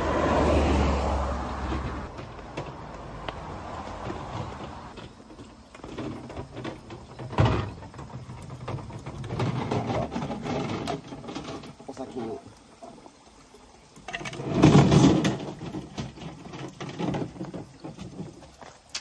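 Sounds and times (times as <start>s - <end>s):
plastic jugs knocking and scraping: 0.8s - 12.4s, 14.0s - 19.0s
footsteps on stone: 1.6s - 7.2s, 17.4s - 19.0s.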